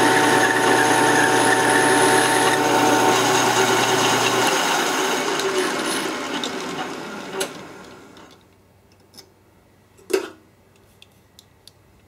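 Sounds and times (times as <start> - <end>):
metal lathe spinning down: 0.0 - 8.4.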